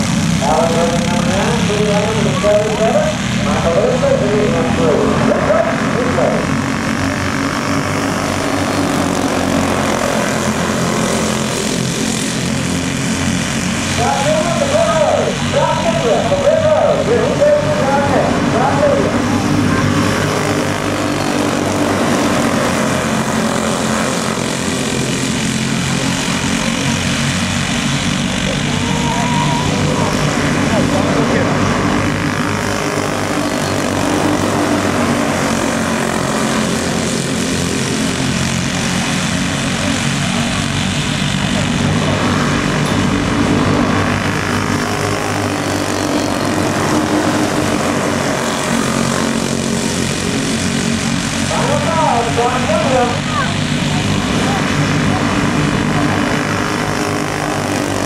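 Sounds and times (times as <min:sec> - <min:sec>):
racing kart engines droning: 0:00.0 - 0:58.0.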